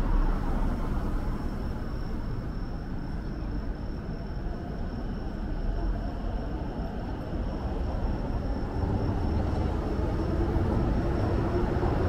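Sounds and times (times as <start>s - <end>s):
passing vehicle rumble: 0.0s - 2.5s, 7.6s - 12.0s.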